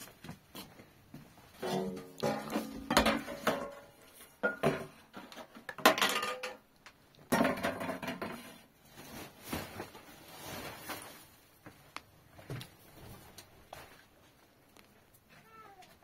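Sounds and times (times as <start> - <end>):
objects clattering: 1.4 - 11.4
hard objects clinking and knocking: 1.6 - 8.5.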